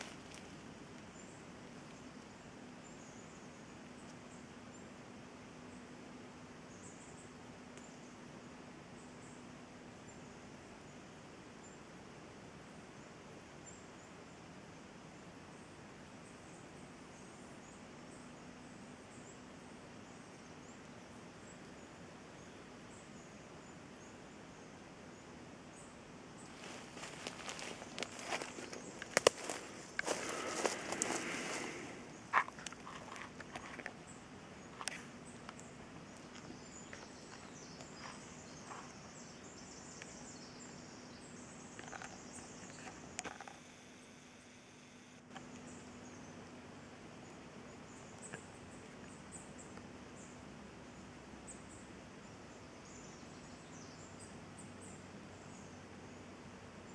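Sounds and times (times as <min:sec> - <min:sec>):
low hum and hiss: 0:00.0 - 0:56.9
young owls hissing begging calls: 0:29.4 - 0:32.6.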